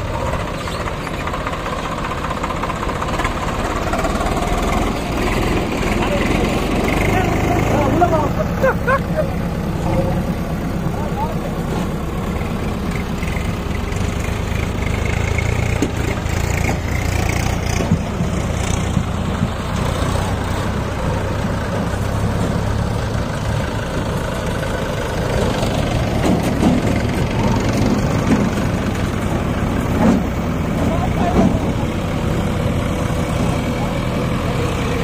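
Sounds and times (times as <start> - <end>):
diesel engines running: 0.0 - 35.0
knocks and rattles: 25.5 - 32.0.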